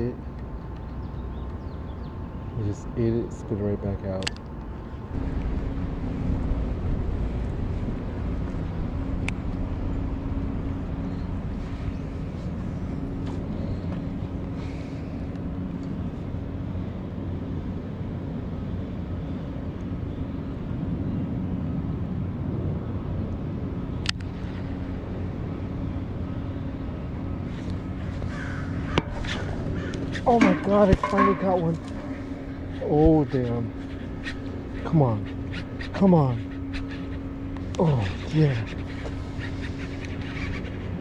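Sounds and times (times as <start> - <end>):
sharp click: 4.2 - 4.5
motor humming: 24.2 - 41.0.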